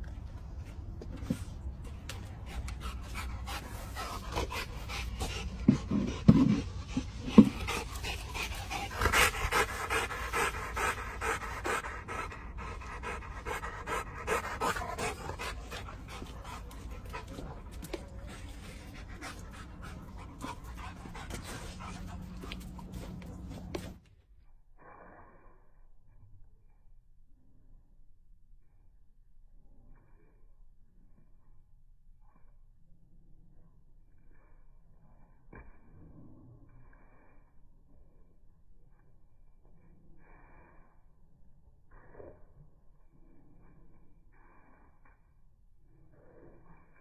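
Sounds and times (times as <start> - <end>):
dog panting: 2.2 - 24.0.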